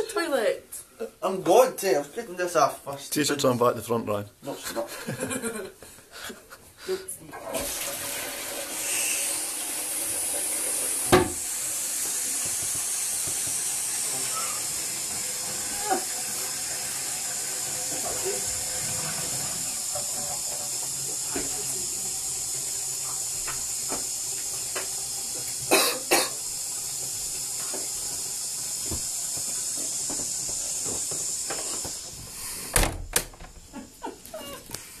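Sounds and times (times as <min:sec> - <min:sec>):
running water hissing: 0:07.4 - 0:33.0.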